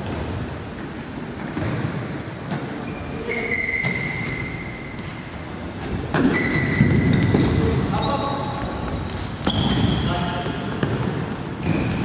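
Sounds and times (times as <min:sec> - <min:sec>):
noisy hall background: 0:00.0 - 0:12.0
high-pitched squeals: 0:01.5 - 0:05.0, 0:06.2 - 0:07.3.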